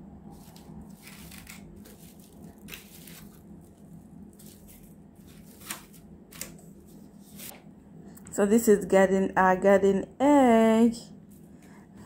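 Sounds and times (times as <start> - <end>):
plastic wrapping crinkling: 0.3 - 7.5
sharp plastic rustles: 0.3 - 7.6.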